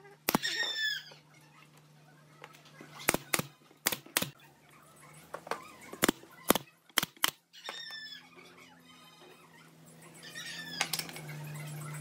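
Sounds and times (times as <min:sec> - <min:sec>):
nail gun shots: 0:03.0 - 0:04.4.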